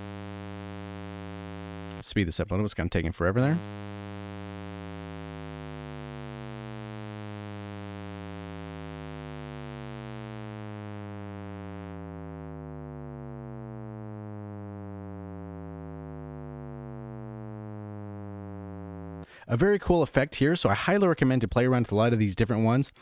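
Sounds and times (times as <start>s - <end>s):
synthesizer descending drone tone: 3.2s - 19.3s.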